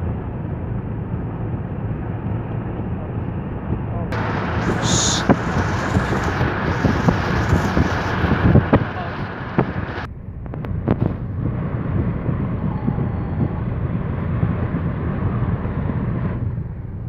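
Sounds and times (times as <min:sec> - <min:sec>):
road rumble inside car: 0:00.0 - 0:17.0
wind rush on microphone: 0:03.7 - 0:17.0.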